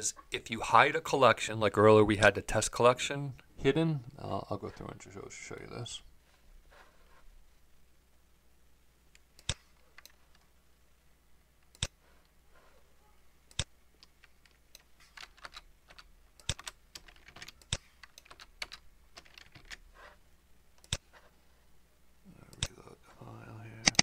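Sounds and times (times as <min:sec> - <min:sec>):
computer keyboard typing: 0:13.5 - 0:19.8.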